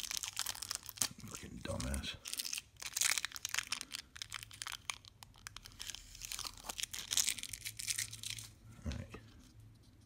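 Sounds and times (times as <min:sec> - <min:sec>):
plastic packaging crinkling and tearing: 0:00.0 - 0:08.6.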